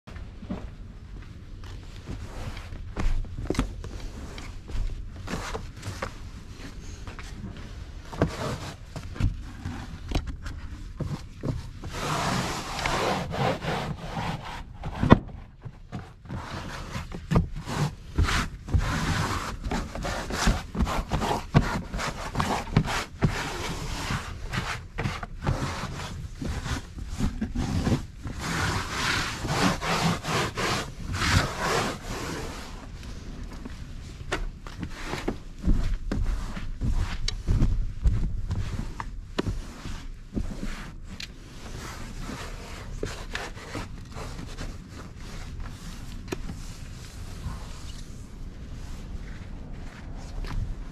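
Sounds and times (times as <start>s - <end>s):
scrubbing fabric upholstery: 7.7s - 33.4s, 34.8s - 49.1s.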